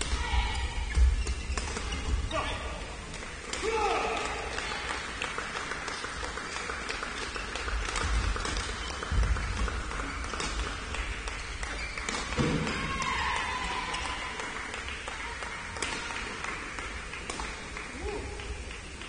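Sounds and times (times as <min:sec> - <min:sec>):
rackets striking shuttlecock: 0:07.1 - 0:13.0, 0:15.7 - 0:19.0.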